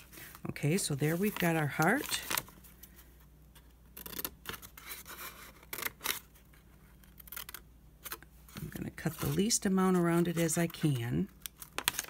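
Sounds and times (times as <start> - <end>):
paper rustling: 0.0 - 3.1, 8.5 - 12.0.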